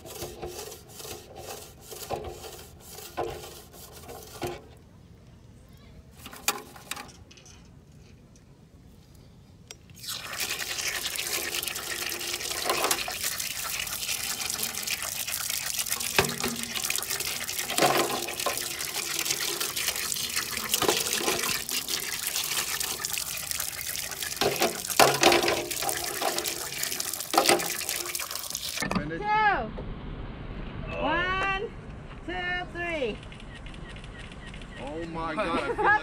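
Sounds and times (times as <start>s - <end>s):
water pouring and splashing on rocks: 10.0s - 28.8s.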